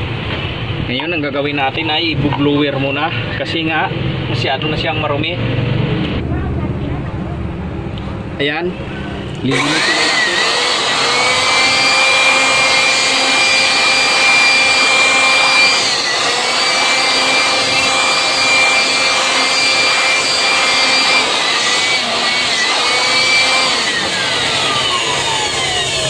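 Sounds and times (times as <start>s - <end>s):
electric air blower whining: 9.4s - 26.0s.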